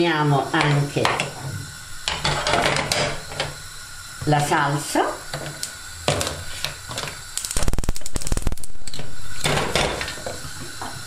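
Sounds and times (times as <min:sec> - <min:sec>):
gas burner hissing: 0:00.0 - 0:11.0
spark lighter clicks: 0:07.3 - 0:09.1.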